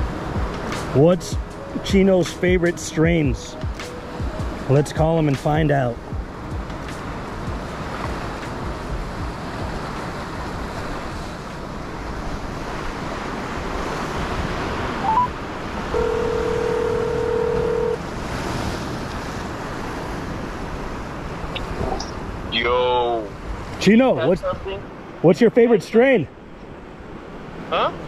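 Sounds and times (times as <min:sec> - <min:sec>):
surf washing against rocks: 0:00.0 - 0:28.0
wind on microphone: 0:06.0 - 0:22.6
phone ringback tone: 0:15.0 - 0:18.0.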